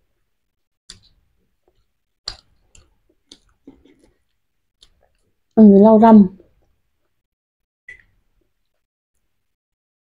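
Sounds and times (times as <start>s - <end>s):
chewing clicks and smacks: 0.9s - 5.6s.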